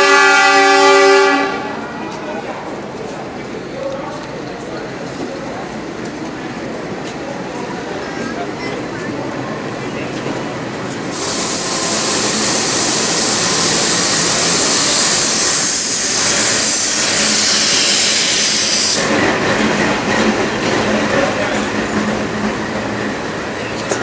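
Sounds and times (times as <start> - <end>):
train wheels rumbling: 0.0 - 24.0
loud steady hiss: 11.0 - 19.1.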